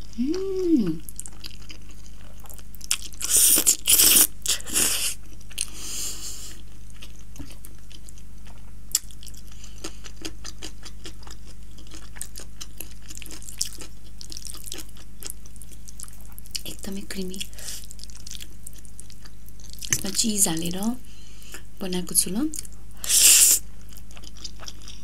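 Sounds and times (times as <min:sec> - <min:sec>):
wet chewing: 0:06.9 - 0:16.7, 0:23.9 - 0:25.0.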